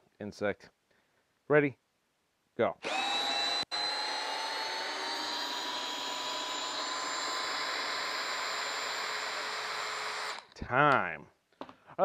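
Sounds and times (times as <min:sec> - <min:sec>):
cordless drill motor whine: 0:02.8 - 0:10.6.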